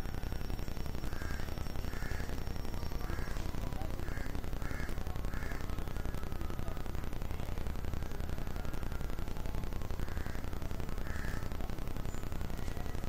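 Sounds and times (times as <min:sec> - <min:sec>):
low background hiss: 0:00.0 - 0:13.0
crow cawing: 0:01.1 - 0:02.3, 0:03.0 - 0:05.7, 0:10.0 - 0:11.6.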